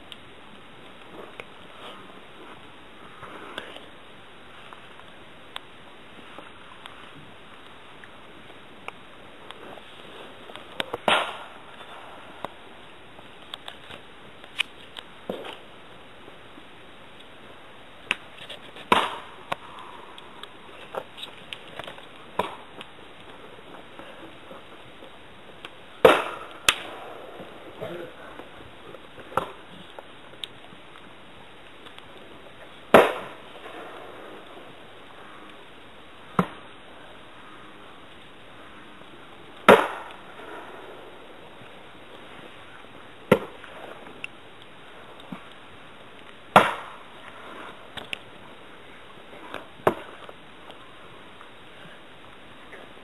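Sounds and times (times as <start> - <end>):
steady low hiss: 0.0 - 53.0
sharp pops and cracks: 10.5 - 12.6, 13.2 - 15.7, 18.0 - 24.4, 25.0 - 27.8, 28.4 - 32.3, 32.9 - 34.1, 39.6 - 40.7, 43.2 - 48.3.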